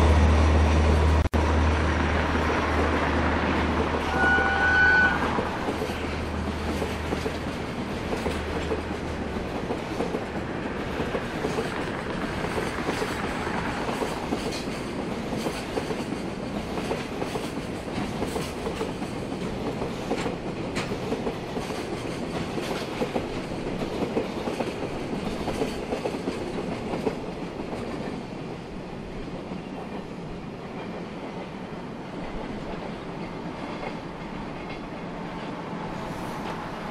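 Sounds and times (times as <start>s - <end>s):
freight wagons rolling on rails: 0.8s - 28.3s
wheels clicking over rail joints: 5.3s - 28.3s.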